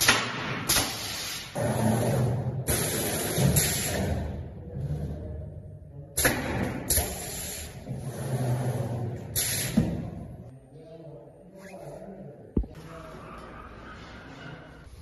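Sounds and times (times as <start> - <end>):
compressed air hisses: 6.9 - 7.8, 9.3 - 10.0.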